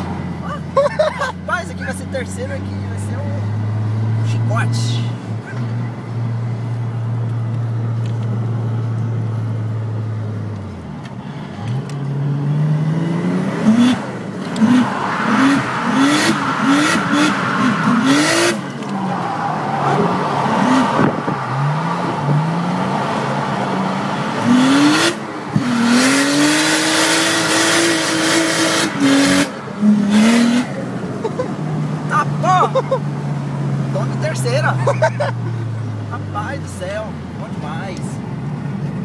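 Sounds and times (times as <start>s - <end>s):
car engine revving: 11.5s - 39.0s
tyres squealing: 14.7s - 21.9s.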